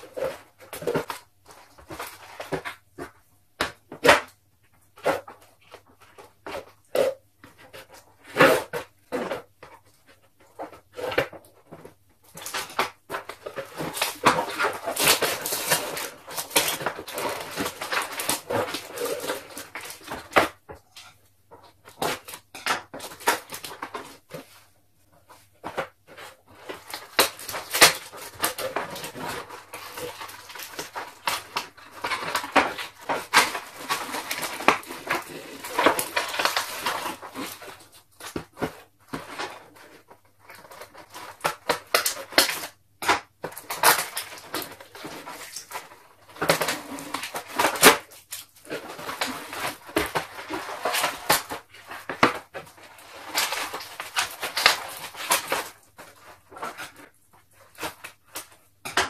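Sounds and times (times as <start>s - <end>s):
cardboard packaging rustling: 0.0s - 4.3s, 4.9s - 59.0s.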